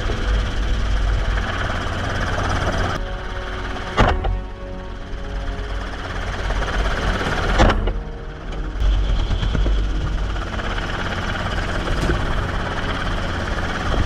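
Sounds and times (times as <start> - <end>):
helicopter rotor and engine drone: 0.0 - 14.0.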